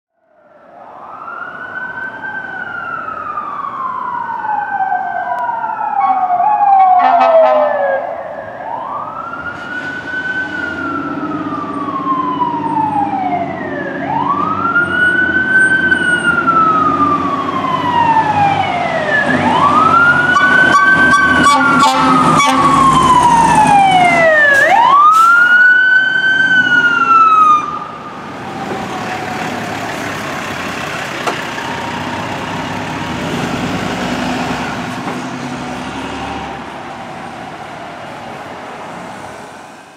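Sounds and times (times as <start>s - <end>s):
sirens wailing: 0.2s - 39.9s
air horn blasts: 7.0s - 7.7s, 21.4s - 22.8s
diesel engine rumble: 27.8s - 39.1s.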